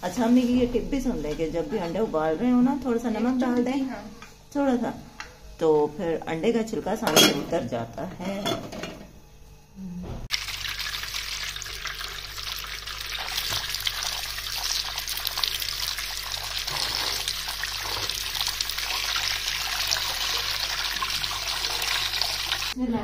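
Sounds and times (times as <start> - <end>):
tap water running and splashing: 10.3 - 22.8.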